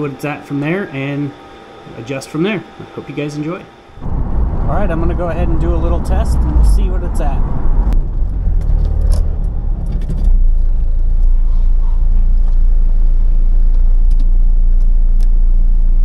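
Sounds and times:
car engine idling: 0:03.9 - 0:15.8.

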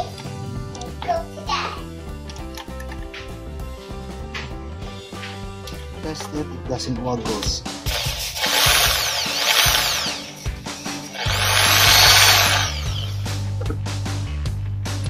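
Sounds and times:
drill motor whining: 0:07.9 - 0:13.4.

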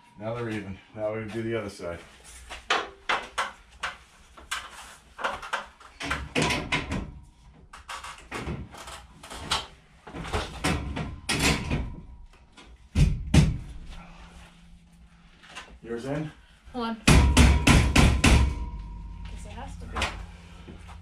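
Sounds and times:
metal channel knocking and clattering: 0:05.2 - 0:07.2, 0:09.4 - 0:13.8, 0:17.1 - 0:19.2
heavy thumps: 0:12.9 - 0:15.2, 0:17.0 - 0:21.0.

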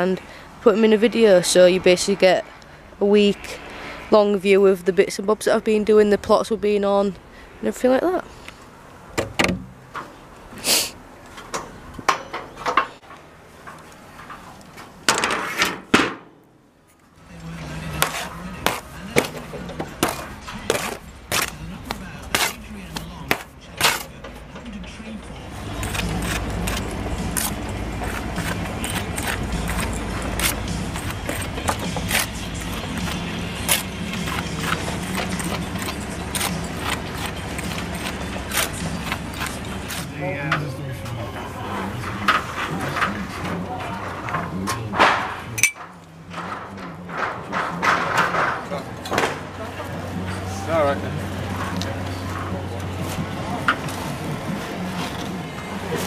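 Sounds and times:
trowel slapping and scraping mortar: 0:18.0 - 0:24.1, 0:25.8 - 0:40.2.

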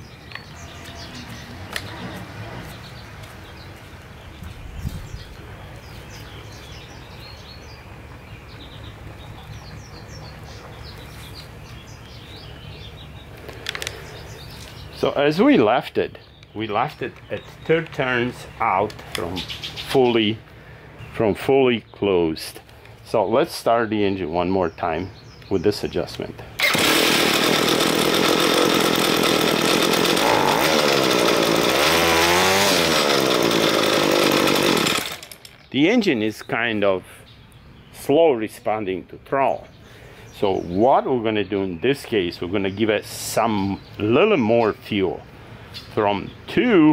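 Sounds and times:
songbirds chirping: 0:00.0 - 0:26.6, 0:27.5 - 0:46.9
string trimmer engine running: 0:26.5 - 0:35.7.

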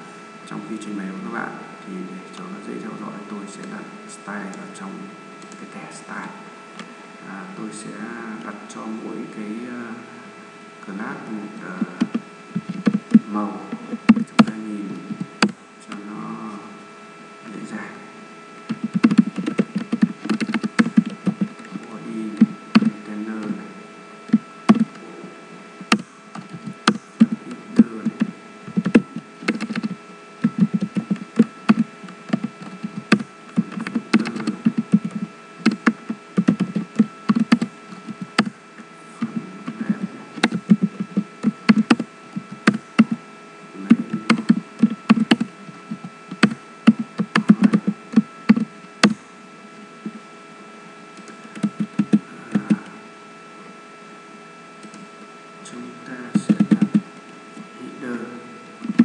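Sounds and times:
steady hum: 0:00.0 - 0:59.0
typing on computer keyboard: 0:18.7 - 0:21.8, 0:24.3 - 0:25.0, 0:28.1 - 0:38.5, 0:43.9 - 0:45.5, 0:51.2 - 0:52.7.

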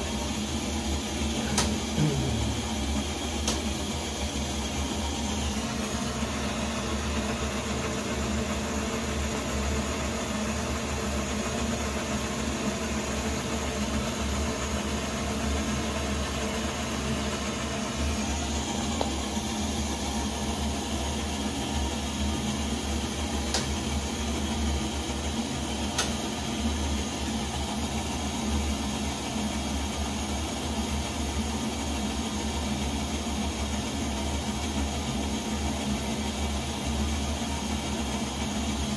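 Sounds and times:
stove flame rushing: 0:00.0 - 0:29.7.

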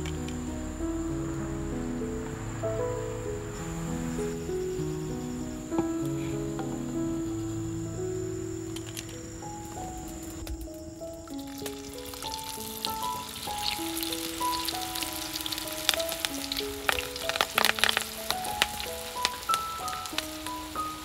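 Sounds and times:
hot oil sizzling and crackling: 0:09.5 - 0:21.0.

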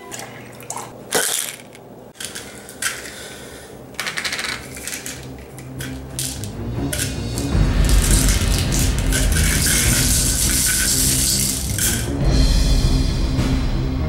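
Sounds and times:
plastic bottle rattling and clicking: 0:00.6 - 0:03.2, 0:04.0 - 0:07.1.

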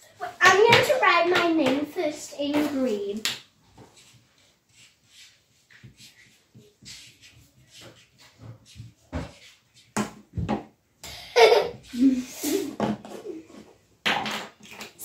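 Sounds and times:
markers scratching on paper: 0:03.8 - 0:10.0.

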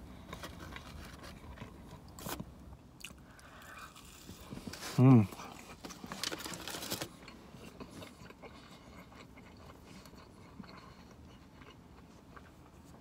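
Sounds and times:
person chewing crunchy food: 0:03.0 - 0:13.0.

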